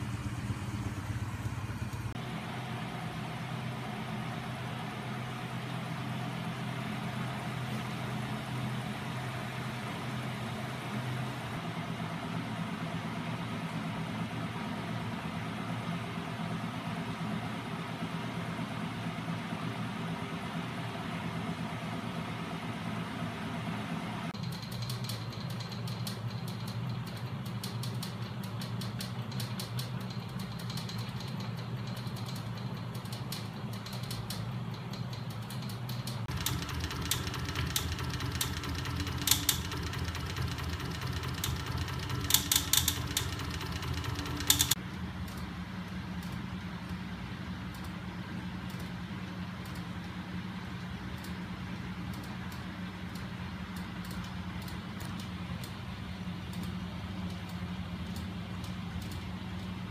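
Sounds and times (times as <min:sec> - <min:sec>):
fast light mechanical ticking: 0:24.3 - 0:59.9
sharp mechanical clicks: 0:24.4 - 0:45.5
electric motor hum: 0:36.3 - 0:44.8.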